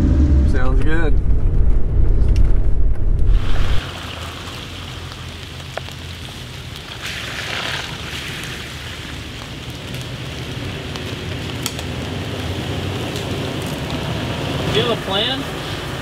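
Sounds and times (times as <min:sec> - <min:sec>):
car engine rumble: 0:00.0 - 0:06.9
rain hiss: 0:03.3 - 0:16.0.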